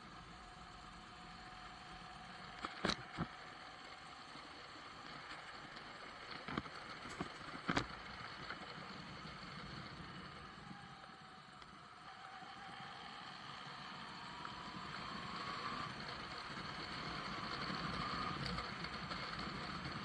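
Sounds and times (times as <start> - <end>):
motorcycle riding noise: 4.9 - 20.0.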